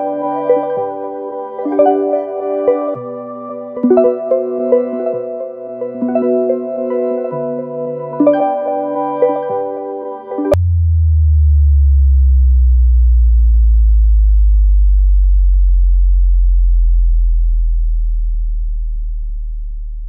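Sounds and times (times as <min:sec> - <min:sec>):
deep sub-bass tone: 0:10.5 - 0:20.0.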